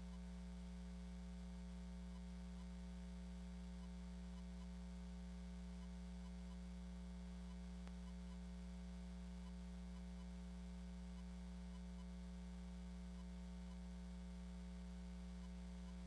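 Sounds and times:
electrical mains hum: 0:00.0 - 0:16.0
faint tick: 0:02.1 - 0:02.7, 0:07.4 - 0:08.4, 0:11.1 - 0:12.1, 0:13.2 - 0:13.8.

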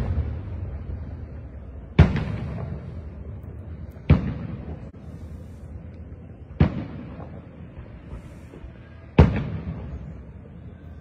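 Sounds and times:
firework booms with echo: 0:00.0 - 0:03.3, 0:03.9 - 0:05.0, 0:06.5 - 0:10.4.

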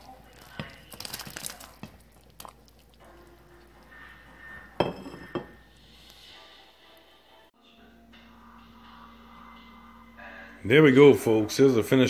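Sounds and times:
dishware clinking against metal pot: 0:04.7 - 0:05.6.

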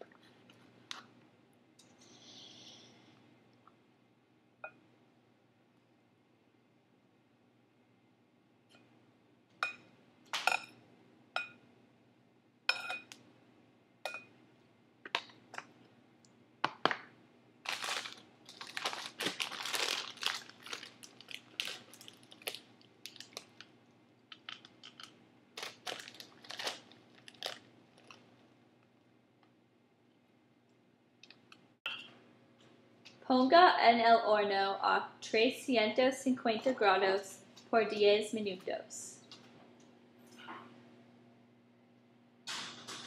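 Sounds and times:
utensil clinking on ceramic bowl: 0:12.7 - 0:13.1
crinkling and rustling: 0:17.7 - 0:28.5.

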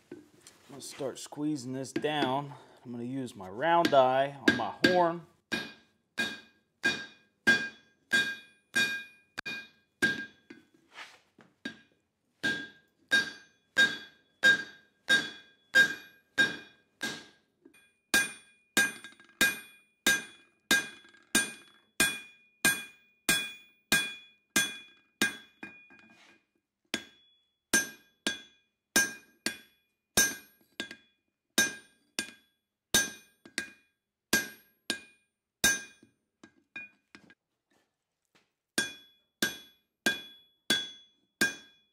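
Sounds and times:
hammer striking metal on anvil: 0:03.8 - 0:10.6, 0:11.6 - 0:25.9, 0:27.0 - 0:33.8, 0:34.4 - 0:36.1, 0:38.8 - 0:41.8.

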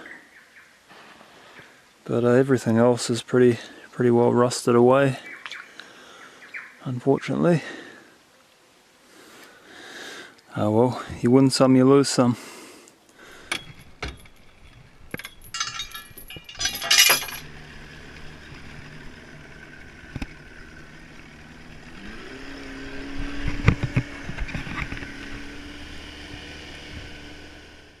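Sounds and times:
keys jangling: 0:13.5 - 0:17.4
outboard motor running: 0:17.5 - 0:28.0.

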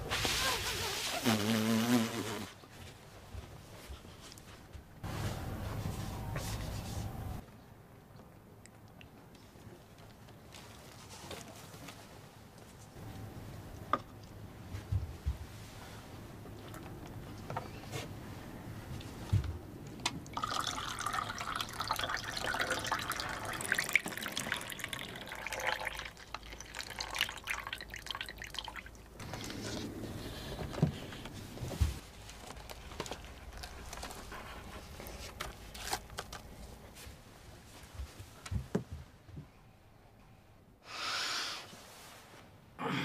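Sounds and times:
liquid pouring and dripping into cup: 0:20.3 - 0:29.5.

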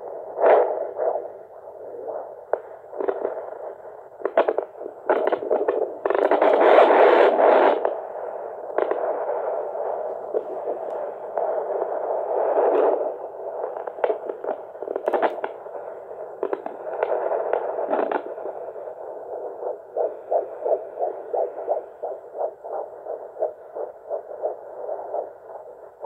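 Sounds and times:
probe scraping clicks: 0:04.2 - 0:07.0, 0:08.7 - 0:09.0, 0:10.0 - 0:11.5, 0:12.7 - 0:18.6.

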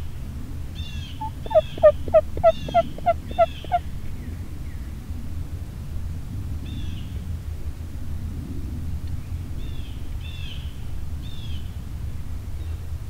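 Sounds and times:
steady low rumble: 0:00.2 - 0:06.6
songbird chirps: 0:00.9 - 0:03.8.

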